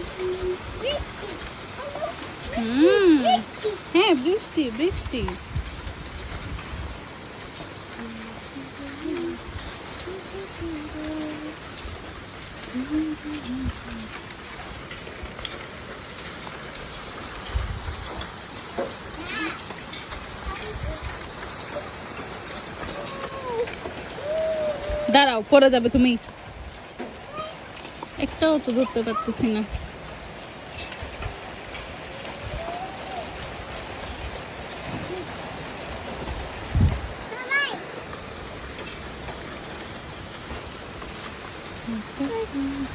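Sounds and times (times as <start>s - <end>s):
person's voice: 0.0s - 5.4s, 8.0s - 11.6s, 12.7s - 14.2s, 22.9s - 26.2s, 28.2s - 29.7s, 41.8s - 42.9s
hail and rain falling: 0.0s - 42.9s.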